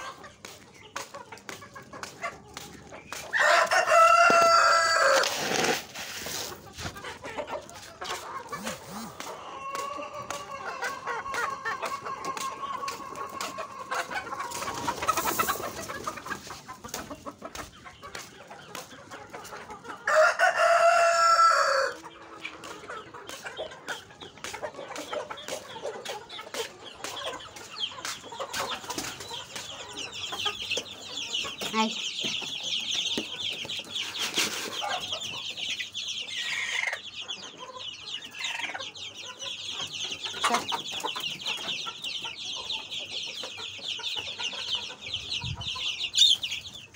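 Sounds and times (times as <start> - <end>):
chickens clucking: 0.0 - 46.9
rooster crowing: 3.4 - 5.3, 20.1 - 22.0.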